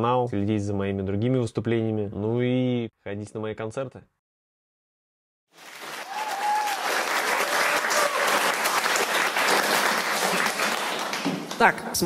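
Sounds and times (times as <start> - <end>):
audience applauding: 5.5 - 12.0
people cheering: 5.6 - 11.6.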